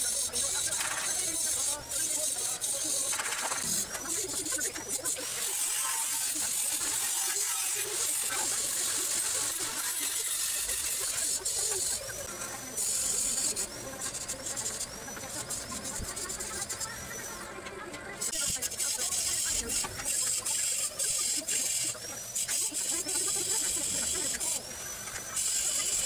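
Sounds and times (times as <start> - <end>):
welding arc crackling: 0.1 - 17.0.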